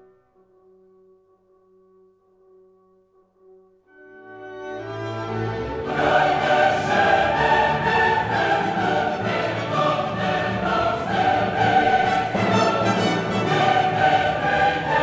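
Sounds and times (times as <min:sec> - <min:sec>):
orchestra: 0:03.9 - 0:15.0
choir singing sustained notes: 0:04.1 - 0:15.0.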